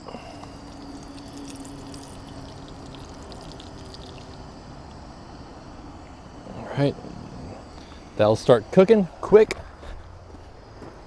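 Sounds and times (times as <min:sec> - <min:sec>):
batter sizzling in hot oil: 0:00.4 - 0:05.4.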